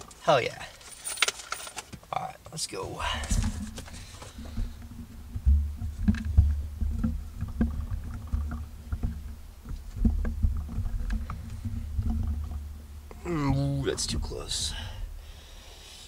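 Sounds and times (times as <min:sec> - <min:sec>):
microphone handling knocks and clicks: 0:03.2 - 0:13.2
low rumble: 0:03.4 - 0:15.4.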